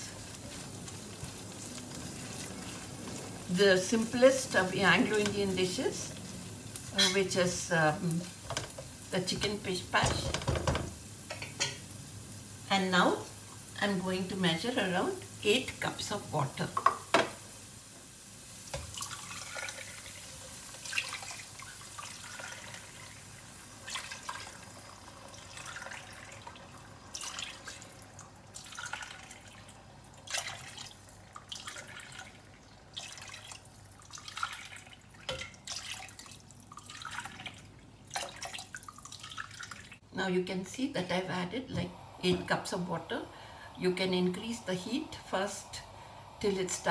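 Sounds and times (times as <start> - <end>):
water pouring into a pot: 0.0 - 9.4, 18.2 - 40.0.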